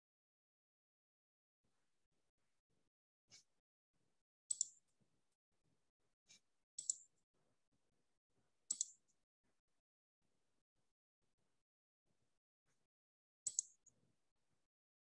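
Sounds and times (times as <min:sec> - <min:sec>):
computer mouse clicks: 0:04.5 - 0:04.8, 0:06.3 - 0:07.1, 0:08.7 - 0:09.1, 0:13.5 - 0:14.0.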